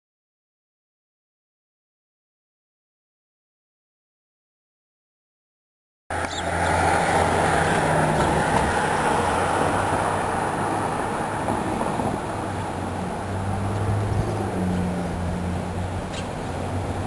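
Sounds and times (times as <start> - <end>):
low engine hum: 6.1 - 17.0
road traffic rush: 6.1 - 17.0.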